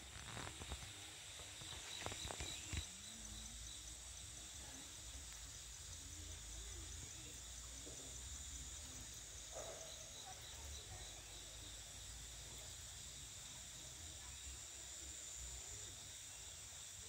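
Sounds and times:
high-pitched insect chirring: 0.1 - 7.6.

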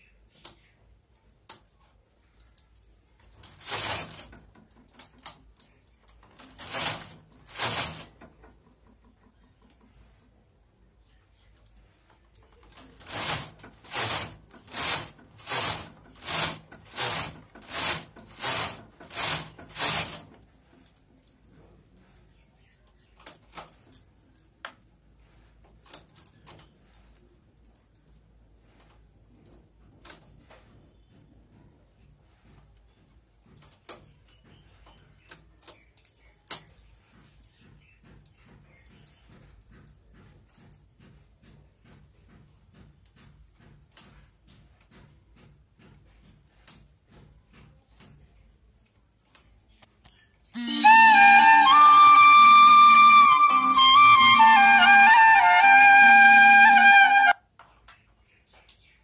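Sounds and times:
needles clicking: 2.4 - 10.6, 11.6 - 21.0, 48.9 - 57.4
knitting machine carriage sliding: 3.1 - 10.5, 11.8 - 22.3, 50.6 - 57.4.

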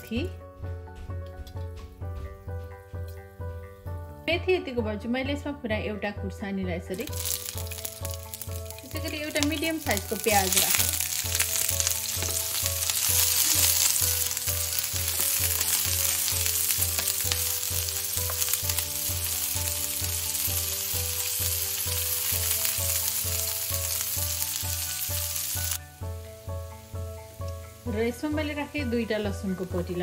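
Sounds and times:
background music with steady beat: 0.0 - 30.0
onion sizzling in oil: 6.9 - 30.0.

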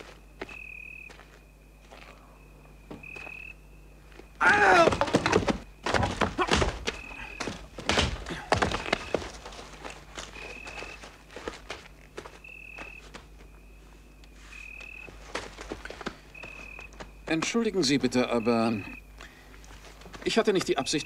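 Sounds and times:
strangled cry: 4.4 - 5.4
heavy thuds and scraping: 4.7 - 10.7.

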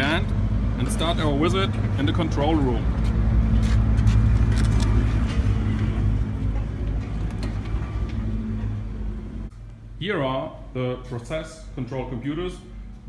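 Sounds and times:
low machinery hum: 2.8 - 13.0.

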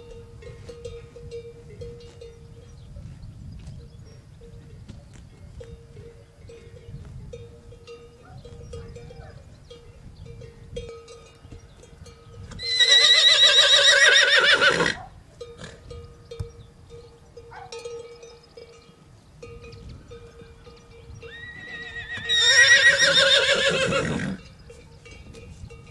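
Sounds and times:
faint bell ringing: 0.0 - 3.0, 5.4 - 12.5, 15.4 - 22.0, 24.4 - 25.9
horse whinnying: 12.6 - 15.1, 21.3 - 24.4.

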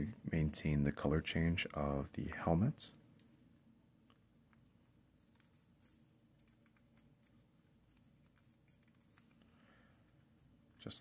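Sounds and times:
faint room hum: 0.0 - 11.0.

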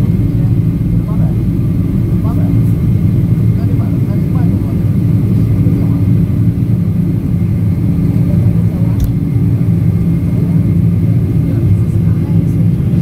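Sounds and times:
jet engines rumbling in cabin: 0.0 - 13.0
sharp click: 9.0 - 9.2.

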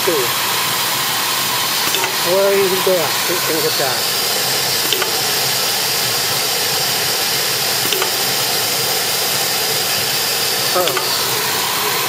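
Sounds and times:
machine hiss and hum: 0.0 - 12.0.

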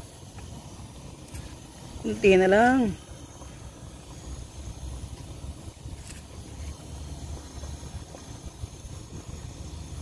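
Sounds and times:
wind buffeting microphone: 0.4 - 10.0.

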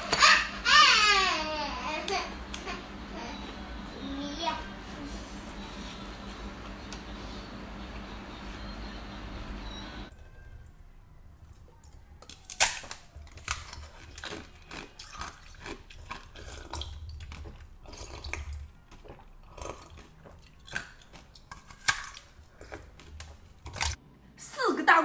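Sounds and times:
ice cracking as chewed: 11.4 - 24.0.

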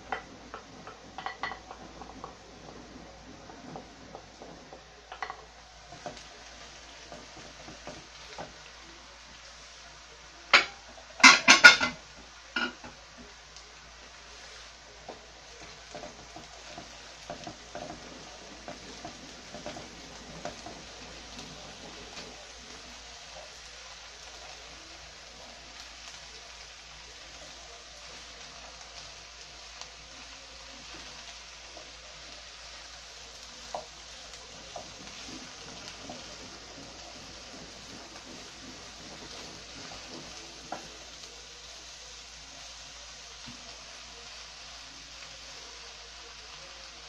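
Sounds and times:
vegetables sizzling in oil: 0.0 - 47.0
wooden spoon stirring in frying pan: 0.0 - 47.0
kitchenware clattering and knocking: 0.1 - 2.4, 10.6 - 12.0.

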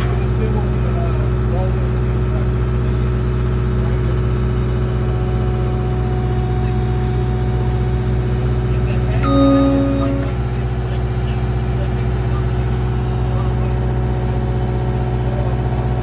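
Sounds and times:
steady tone: 9.2 - 10.6.

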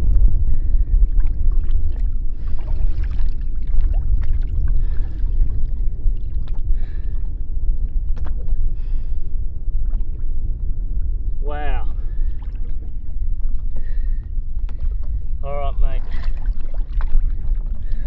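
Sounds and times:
steady low rumble: 0.0 - 18.0
water lapping around boat: 0.0 - 18.0
faint splashes: 1.1 - 7.3, 14.7 - 18.0.

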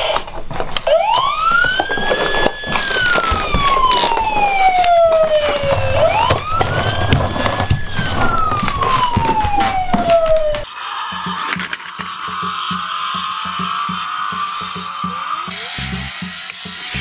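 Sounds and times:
toy siren wailing: 0.8 - 17.0
plastic toy truck rattling: 1.5 - 10.2, 11.2 - 12.6.

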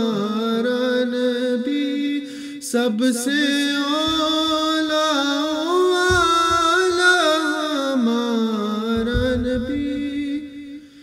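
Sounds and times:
young male voices singing: 1.6 - 8.1, 8.8 - 10.8
soft low thuds: 4.0 - 4.5, 6.0 - 7.2, 8.9 - 10.7.

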